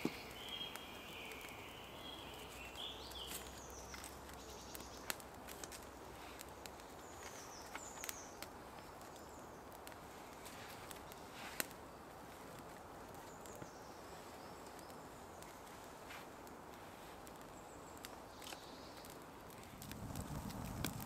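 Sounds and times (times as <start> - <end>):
faint high bird chirps: 0.0 - 5.1
campfire crackling and popping: 0.0 - 21.0.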